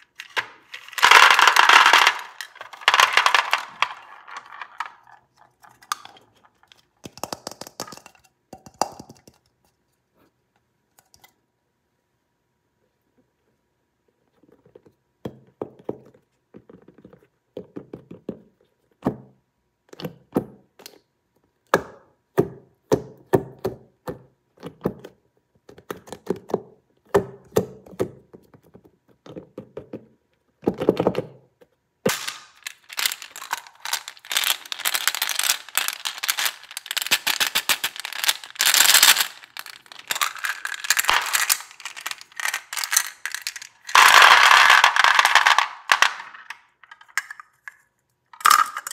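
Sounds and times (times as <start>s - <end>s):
small balls rattling in plastic tub: 0.0s - 9.3s, 32.1s - 48.9s.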